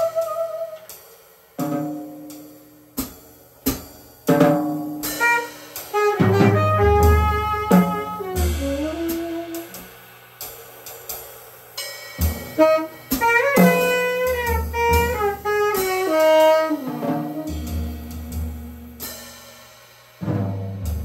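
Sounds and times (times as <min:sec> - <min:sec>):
saxophone phrases: 0:00.0 - 0:00.9, 0:05.2 - 0:09.8, 0:12.4 - 0:18.6
drum and cymbal hits: 0:00.0 - 0:21.0.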